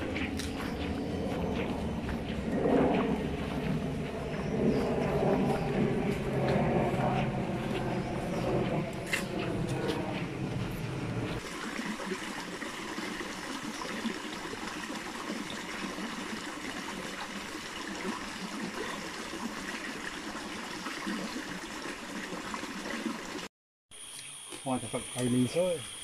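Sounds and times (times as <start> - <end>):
stream water flowing: 0.0 - 4.8, 9.0 - 23.5.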